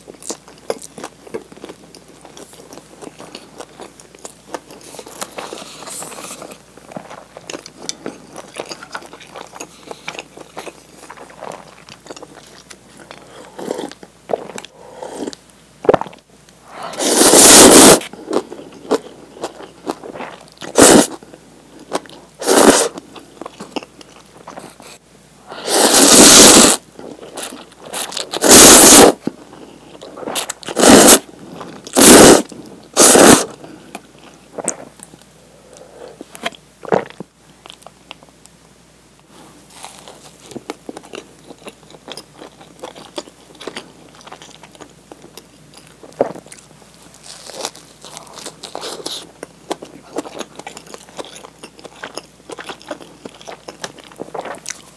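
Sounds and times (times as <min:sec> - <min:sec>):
quiet chewing and crunches: 0:00.0 - 0:16.6, 0:22.9 - 0:25.0, 0:31.5 - 0:38.6, 0:39.3 - 0:54.9
slurping noodles: 0:16.9 - 0:18.1, 0:20.7 - 0:21.2, 0:22.4 - 0:23.0, 0:25.6 - 0:26.8, 0:27.4 - 0:29.2, 0:30.1 - 0:31.2, 0:31.9 - 0:33.6.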